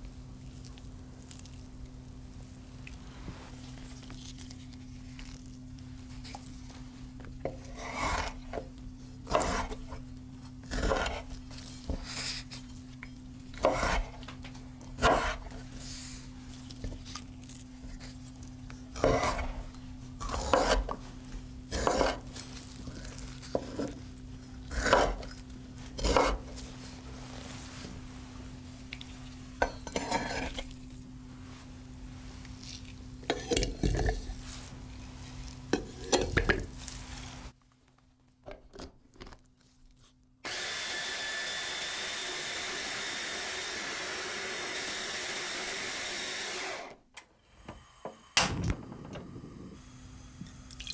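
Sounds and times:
knife chopping on wooden board: 0:09.3 - 0:09.8, 0:13.6 - 0:14.2, 0:15.0 - 0:15.4, 0:20.3 - 0:21.0, 0:21.8 - 0:22.2, 0:24.8 - 0:25.2, 0:26.0 - 0:26.4
electric food chopper running: 0:40.4 - 0:48.4.

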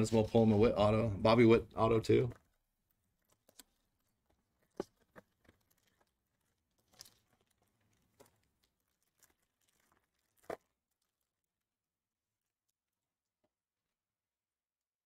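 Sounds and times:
foil wrapper tearing and crinkling: 0:03.1 - 0:11.6.

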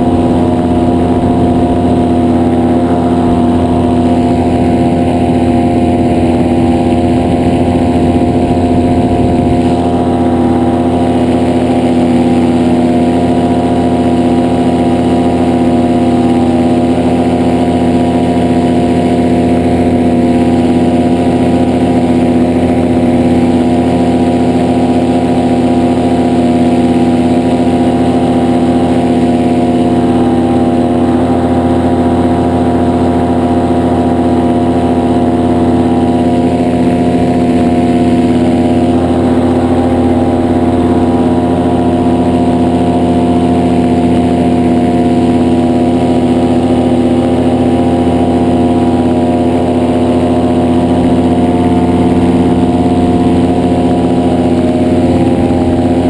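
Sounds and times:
paramotor engine and propeller: 0:00.0 - 0:56.0.

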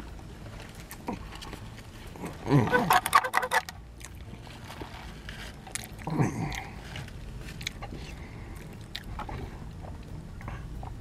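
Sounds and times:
man chewing: 0:00.6 - 0:11.0
lip smacks: 0:08.6 - 0:09.4.

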